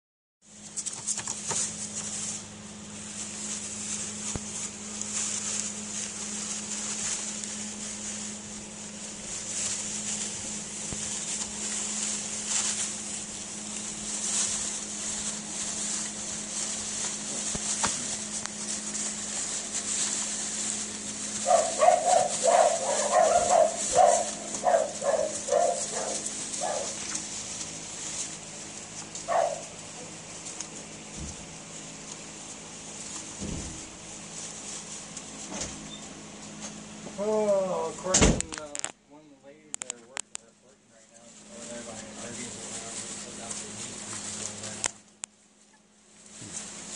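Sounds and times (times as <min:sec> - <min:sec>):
low hum and hiss: 0:00.5 - 0:46.9
puppies yapping: 0:21.2 - 0:27.7, 0:28.9 - 0:30.2.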